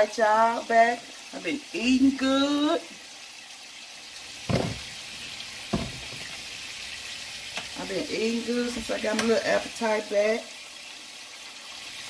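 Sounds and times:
burger patties sizzling: 0:00.0 - 0:12.0
knocks: 0:04.5 - 0:04.8, 0:05.7 - 0:06.2.

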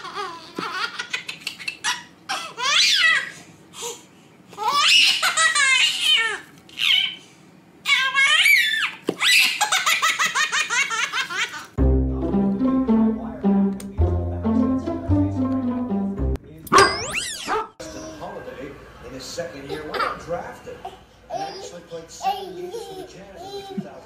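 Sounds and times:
baby laughing: 0:00.0 - 0:03.3, 0:21.3 - 0:23.9.

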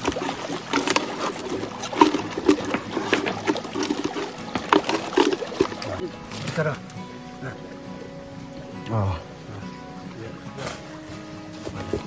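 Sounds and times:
plastic bottle crackling: 0:00.0 - 0:07.0
stream trickling over rocks: 0:00.0 - 0:12.0.

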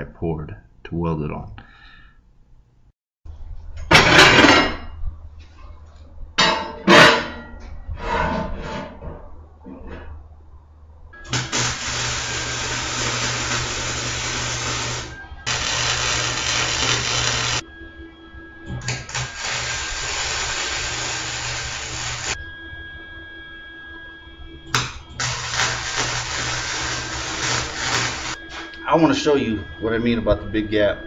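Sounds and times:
arc welder hissing: 0:11.2 - 0:17.6, 0:18.8 - 0:22.4, 0:24.7 - 0:28.7.

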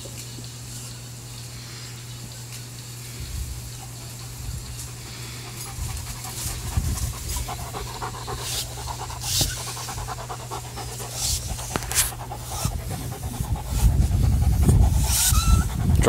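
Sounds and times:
dog panting rapidly: 0:03.6 - 0:16.0.

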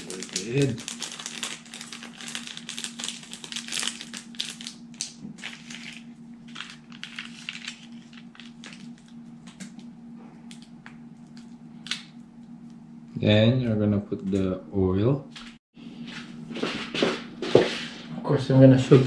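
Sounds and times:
plastic sachet crinkling: 0:00.0 - 0:09.6.

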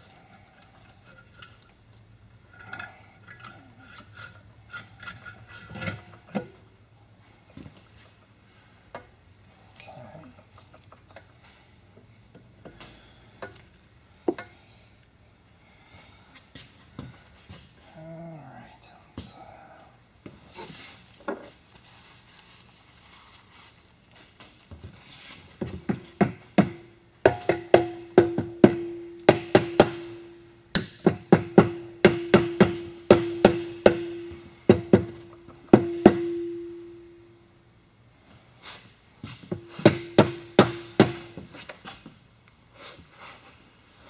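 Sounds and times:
tapping on metal with ringing: 0:26.6 - 0:37.2, 0:39.6 - 0:41.4.

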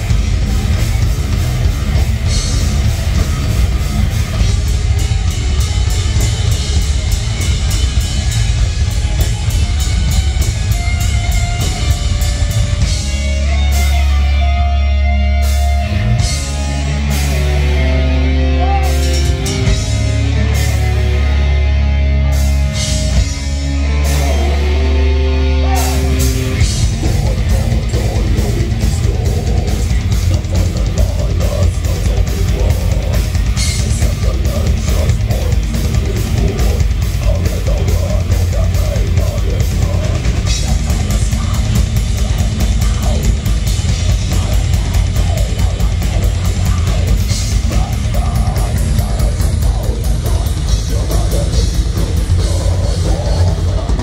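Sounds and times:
fast dense drumming: 0:00.0 - 0:14.1, 0:18.6 - 0:21.2, 0:22.7 - 0:54.0
bass guitar: 0:00.0 - 0:54.0
distorted electric guitars: 0:00.0 - 0:54.0.

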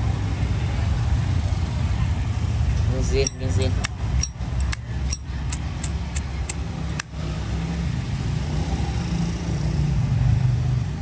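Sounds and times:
traffic rumble: 0:00.0 - 0:11.0.

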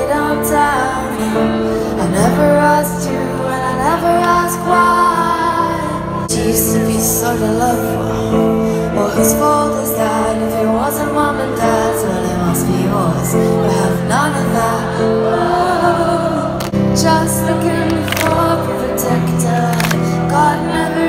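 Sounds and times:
woman singing: 0:00.0 - 0:21.0.

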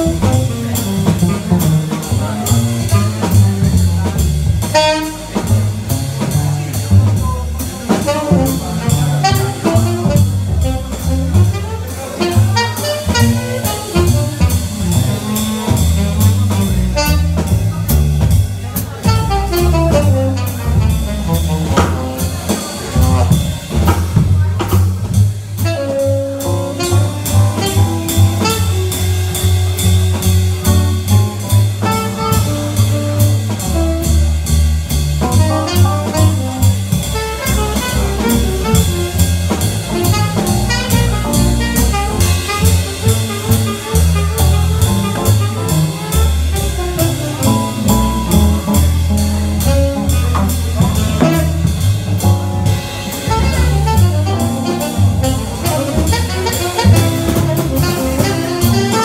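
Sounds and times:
double bass: 0:00.0 - 0:59.0
drum kit cymbals: 0:00.0 - 0:59.0
tenor saxophone melody: 0:53.1 - 0:59.0.

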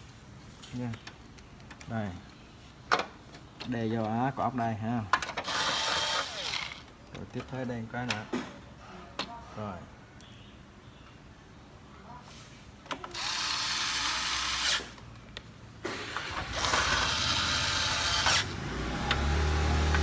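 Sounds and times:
electric screwdriver motor whirring: 0:05.4 - 0:06.8, 0:13.1 - 0:15.0, 0:16.5 - 0:18.6.

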